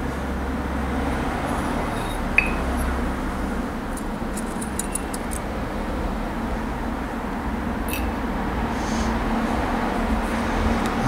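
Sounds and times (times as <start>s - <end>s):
small metal parts clinking: 4.0s - 5.4s.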